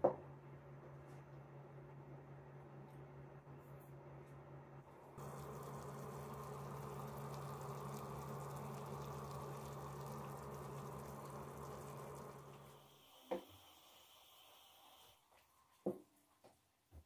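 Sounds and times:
syrup bubbling in a pot: 5.2s - 15.1s.

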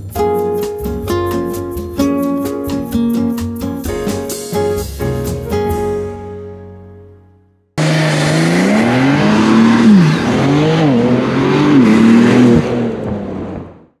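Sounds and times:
car engine revving: 7.8s - 13.9s.

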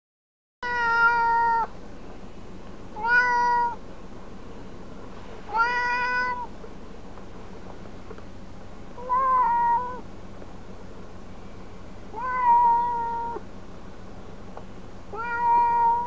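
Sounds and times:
cat meowing loudly: 0.6s - 1.7s, 3.0s - 3.8s, 5.5s - 6.5s, 9.0s - 10.0s, 12.1s - 13.4s, 15.1s - 16.0s.

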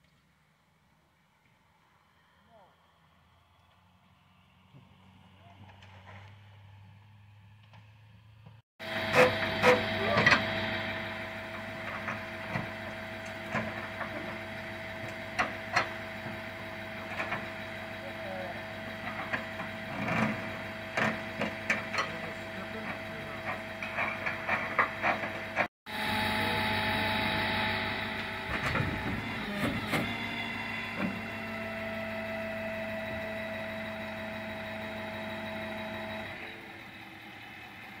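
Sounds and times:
truck running with steady hum: 0.0s - 38.0s.

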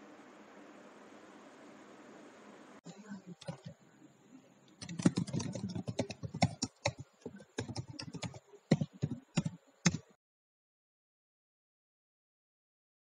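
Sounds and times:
computer keyboard typing: 3.4s - 3.7s, 4.7s - 10.2s.

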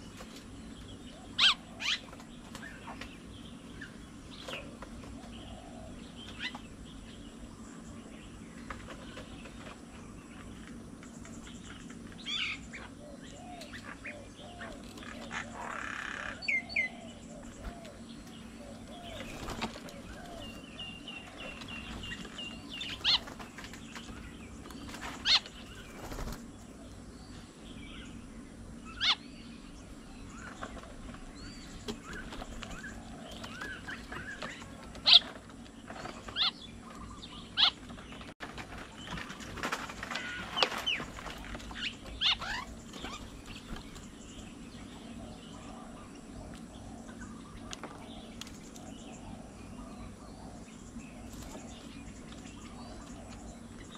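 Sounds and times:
birds calling and chattering: 0.0s - 53.9s
wings flapping: 19.0s - 26.8s, 38.1s - 44.1s.

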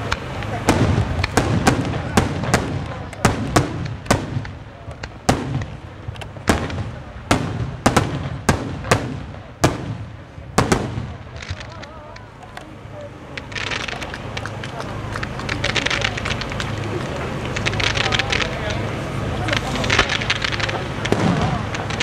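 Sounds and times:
firework shells bursting: 0.0s - 22.0s
low continuous rumble: 0.0s - 22.0s.

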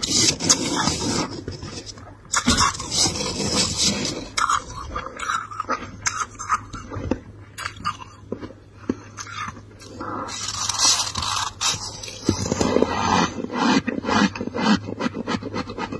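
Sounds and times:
metal spoon scraping frost: 0.0s - 6.9s, 9.1s - 15.9s.

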